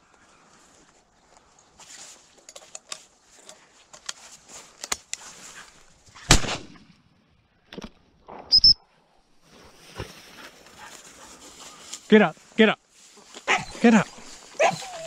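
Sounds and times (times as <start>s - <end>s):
rustling through dry grass: 0.0s - 6.8s, 9.3s - 15.0s
shotgun shot: 6.3s - 6.8s.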